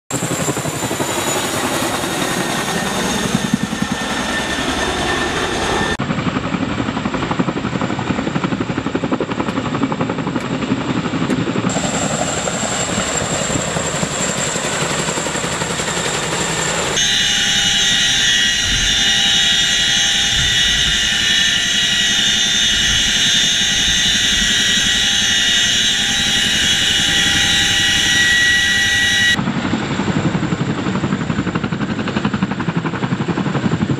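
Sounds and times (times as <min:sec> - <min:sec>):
high-pitched turbine whine: 0:00.1 - 0:06.2, 0:11.5 - 0:29.7
helicopter rotors and engines: 0:00.1 - 0:33.9.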